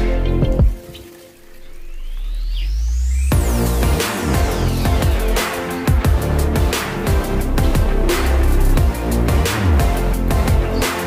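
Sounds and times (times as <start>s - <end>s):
electronic dance music: 3.3s - 11.0s.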